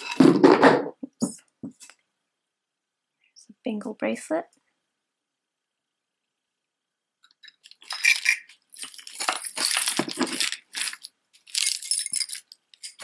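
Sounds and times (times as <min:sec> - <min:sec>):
jewelry clinking and jingling: 0:07.4 - 0:13.0.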